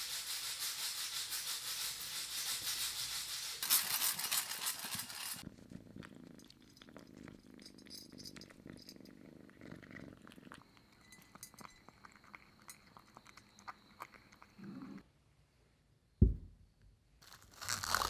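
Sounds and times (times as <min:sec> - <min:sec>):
cat crunching dry kibble: 0:03.6 - 0:14.6, 0:17.2 - 0:18.0.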